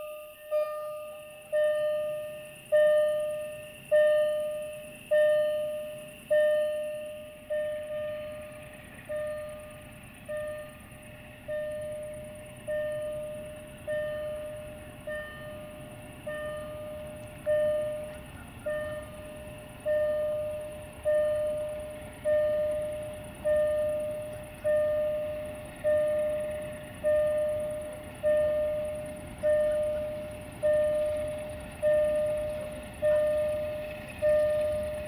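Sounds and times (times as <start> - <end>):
freight train rumbling: 0.0 - 35.0.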